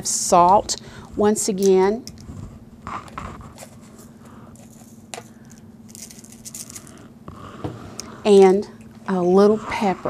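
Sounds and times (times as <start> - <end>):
faint steady hum: 0.0 - 10.0
salt grains rattling into spoon: 5.9 - 7.0.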